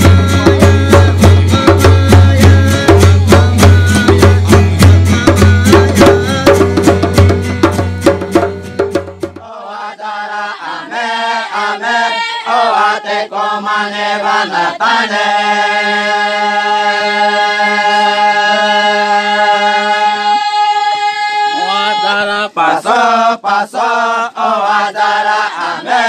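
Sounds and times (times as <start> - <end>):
acoustic guitars: 0.0 - 9.4
hand drum: 0.0 - 9.4
voices chanting: 9.4 - 26.0.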